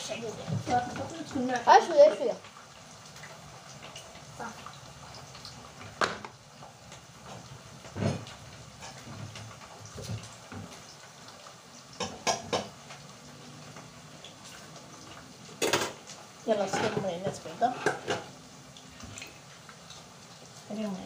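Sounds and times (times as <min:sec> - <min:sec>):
kitchen things clinking: 0:15.6 - 0:16.0.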